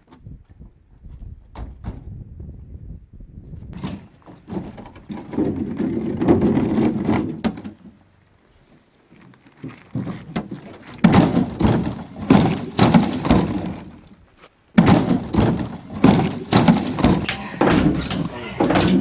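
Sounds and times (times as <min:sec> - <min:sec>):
hollow wooden knocks and thuds: 0:09.8 - 0:14.1, 0:14.8 - 0:19.0.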